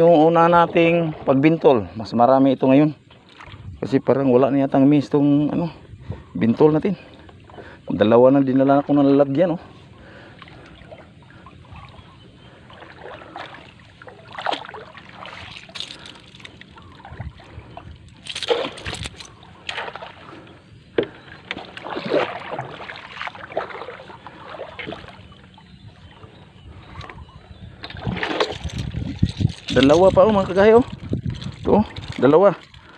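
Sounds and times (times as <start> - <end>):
water splashes and drips: 12.7 - 20.3, 21.0 - 25.7, 27.8 - 32.9.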